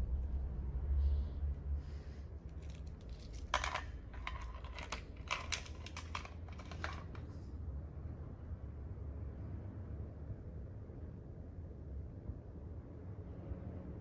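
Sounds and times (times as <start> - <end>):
keys clicking and jingling: 2.6 - 7.2.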